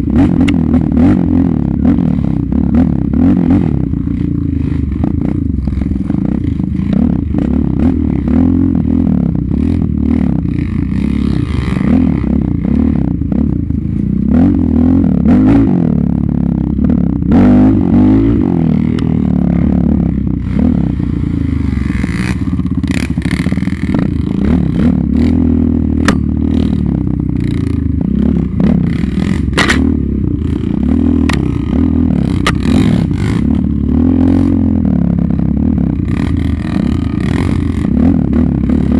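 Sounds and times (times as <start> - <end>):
off-road engine running hard: 0.0 - 38.9
knocks and scrapes against vehicle: 29.0 - 30.0, 32.2 - 33.5.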